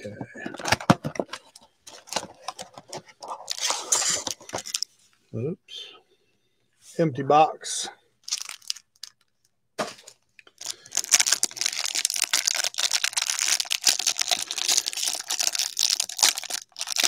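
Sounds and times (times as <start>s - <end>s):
plastic wrapping crinkling and tearing: 3.2s - 4.8s, 8.2s - 9.3s, 10.6s - 17.0s.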